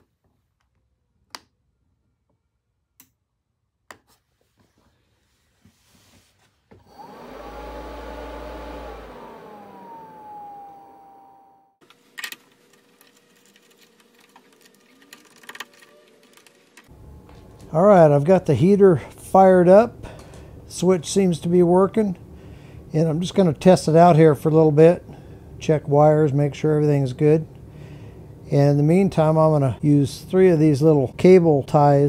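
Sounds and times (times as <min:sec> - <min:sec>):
heater blower fan whirring: 0:06.8 - 0:32.0.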